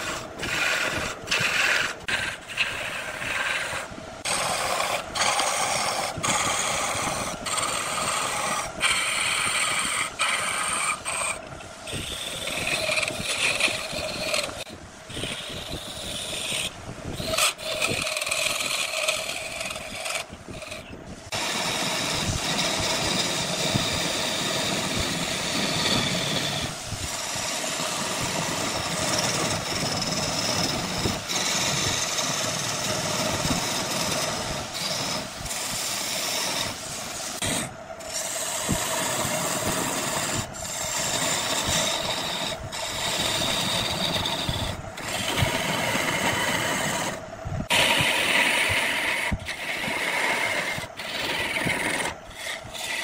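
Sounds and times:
turning tool scraping wood: 0.0 - 53.0
wood lathe whirring hum: 0.0 - 53.0.

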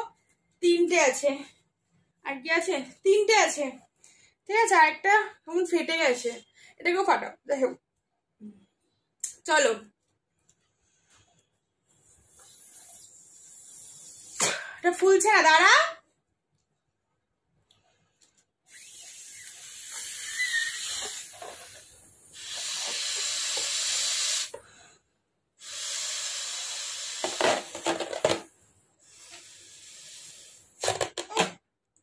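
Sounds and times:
person blowing into balloon: 12.0 - 14.6, 18.7 - 24.6, 25.6 - 28.0, 29.0 - 31.5.

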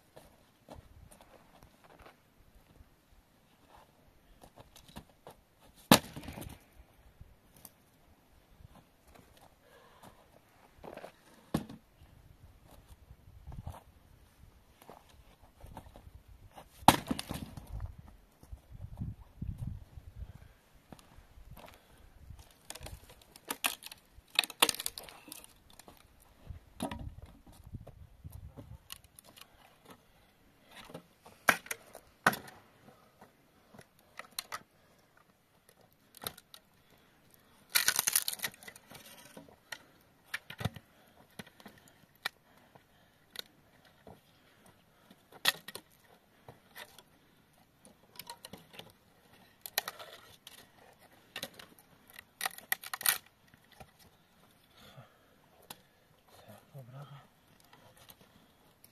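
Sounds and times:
dry firewood cracking: 16.8 - 17.8, 21.5 - 27.6, 28.3 - 30.0, 33.7 - 54.9.

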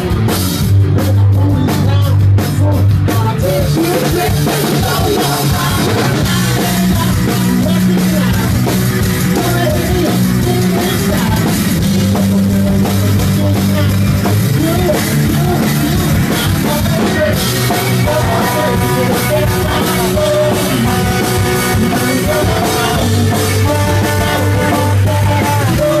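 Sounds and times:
driving drum kit: 0.0 - 26.0
guitars: 0.0 - 26.0
live rock band: 0.0 - 26.0
sustained low bass notes: 0.0 - 26.0.

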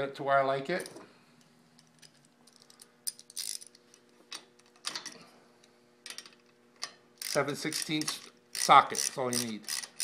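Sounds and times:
hand tools clicking and jangling: 7.2 - 10.0.

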